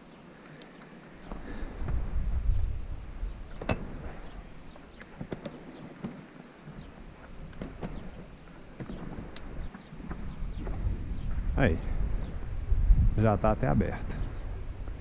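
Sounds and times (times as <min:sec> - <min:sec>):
low rumble on microphone: 0:01.4 - 0:05.0, 0:09.0 - 0:15.0.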